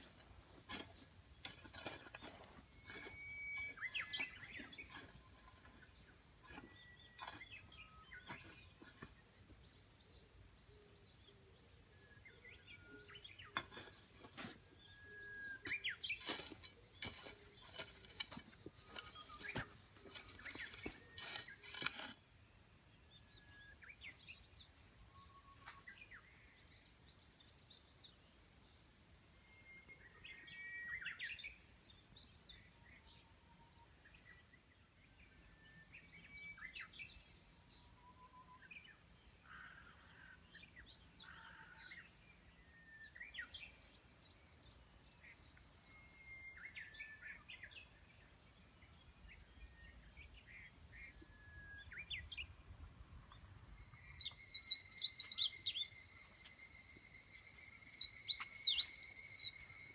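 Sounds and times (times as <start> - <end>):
birds chirping: 0.0 - 22.2, 53.7 - 59.9
shovel scraping soil: 0.0 - 22.3.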